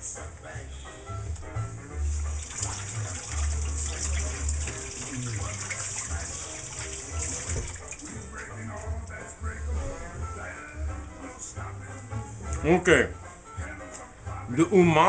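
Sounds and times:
hands rinsing under water: 0:02.1 - 0:08.5
faucet running into steel sink: 0:02.2 - 0:08.1.

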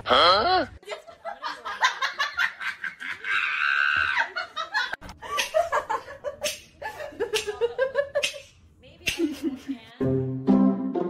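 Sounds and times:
high drawn-out cry: 0:03.1 - 0:04.4.

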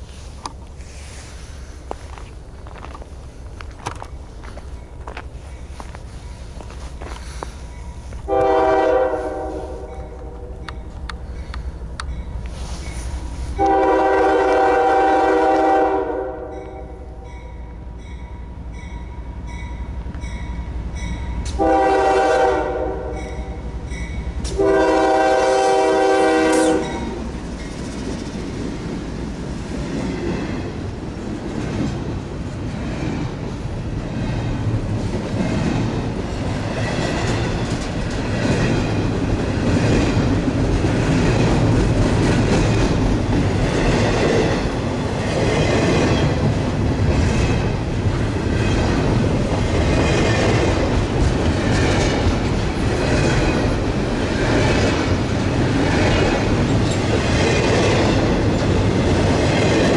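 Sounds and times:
locomotives passing: 0:00.0 - 0:15.4, 0:26.9 - 0:59.9
train wheels clattering: 0:00.0 - 0:15.6, 0:23.2 - 0:59.9
locomotive air horn blasts: 0:08.3 - 0:10.6, 0:13.6 - 0:17.2, 0:21.5 - 0:23.6, 0:24.5 - 0:27.2.

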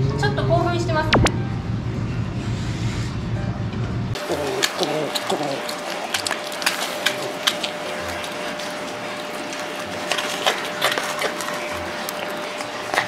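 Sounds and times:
steady hum: 0:00.9 - 0:06.6
animal chewing and crunching meat: 0:04.2 - 0:13.0.

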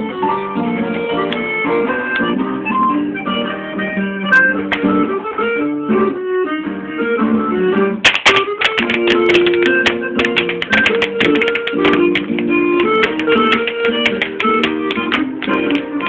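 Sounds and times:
hard shoes clicking on floor: 0:08.0 - 0:16.0.

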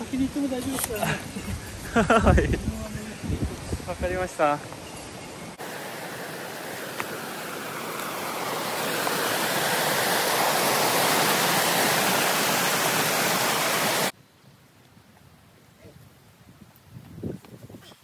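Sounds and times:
running water rushing: 0:04.0 - 0:14.2.

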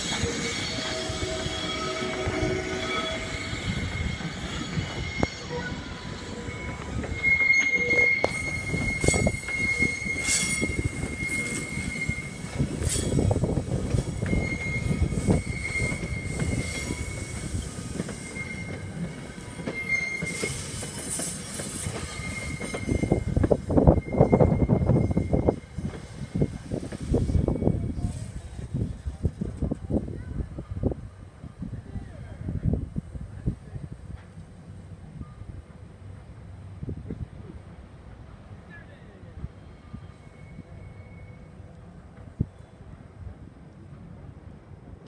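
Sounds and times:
train wheels squealing: 0:00.0 - 0:29.2, 0:39.6 - 0:43.0
train low rumble: 0:00.0 - 0:45.0.

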